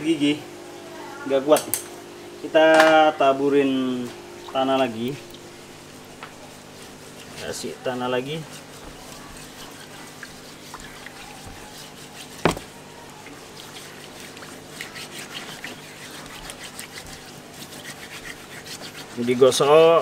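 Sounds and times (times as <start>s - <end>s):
low steady hum: 0.0s - 19.1s
water sloshing: 4.3s - 17.8s
scratchy rubbing on shell: 5.8s - 20.0s.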